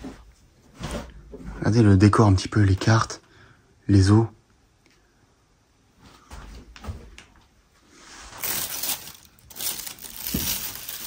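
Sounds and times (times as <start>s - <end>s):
rustling crinkling noise: 6.0s - 11.0s.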